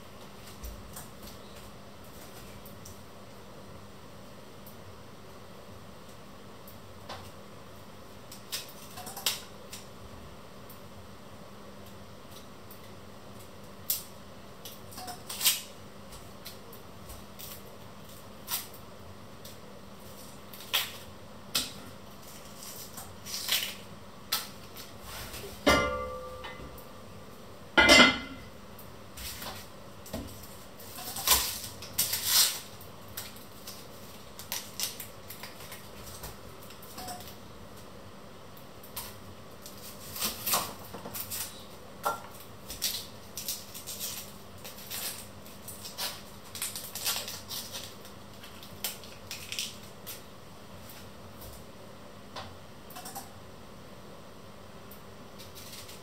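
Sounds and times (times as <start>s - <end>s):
dry onion skin crackling: 8.1s - 10.0s, 11.8s - 25.5s, 29.2s - 37.9s, 38.6s - 51.5s, 55.3s - 56.0s
kitchenware clanking: 25.6s - 26.8s, 27.8s - 28.5s.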